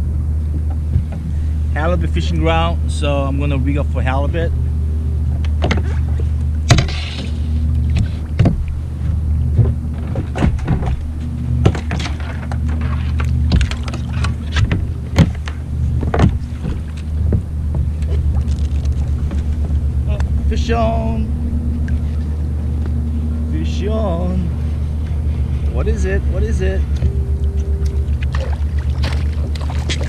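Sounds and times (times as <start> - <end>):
steady low hum: 0.0 - 30.0
gear knocking on plastic kayak: 7.9 - 20.4.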